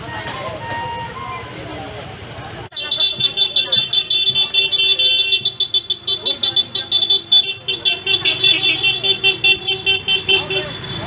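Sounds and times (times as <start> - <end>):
scooter engines running: 0.0 - 11.0
scooter horns beeping: 2.7 - 11.0.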